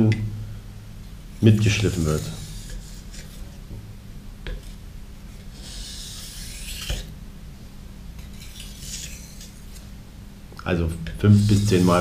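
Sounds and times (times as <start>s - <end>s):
knife scraping on whetstone: 1.8s - 3.5s, 5.5s - 7.1s, 8.2s - 9.9s, 11.4s - 12.0s.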